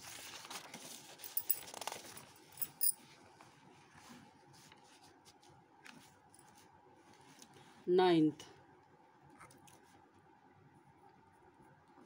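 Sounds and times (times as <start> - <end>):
paper rustling: 0.0 - 2.3.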